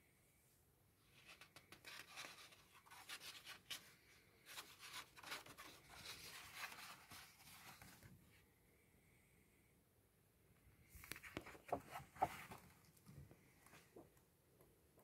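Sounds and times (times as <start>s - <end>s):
glossy paper pages turning: 1.2s - 8.1s, 11.0s - 12.8s.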